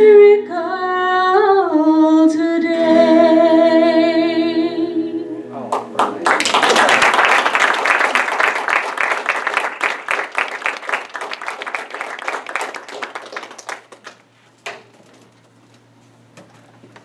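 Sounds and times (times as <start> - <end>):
congregation applauding: 5.7 - 14.3.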